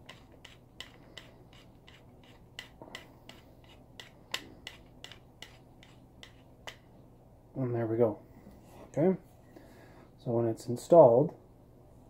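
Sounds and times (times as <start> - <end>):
light rubbing: 0.0 - 6.8.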